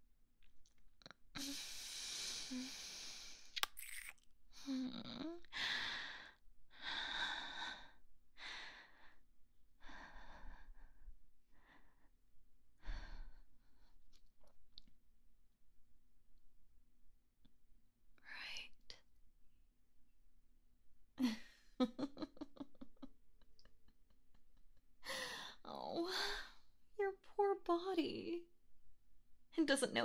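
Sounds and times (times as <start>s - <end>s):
breathy kisses with lip smacks: 3.6s - 4.2s.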